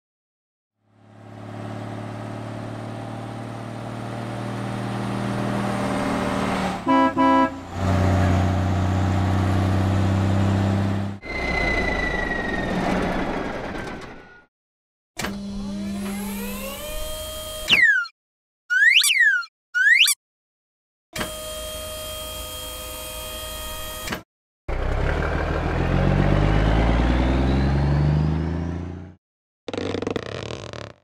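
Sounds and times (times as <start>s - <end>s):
horn toots: 6.8s - 7.9s
truck engine running: 7.0s - 14.3s.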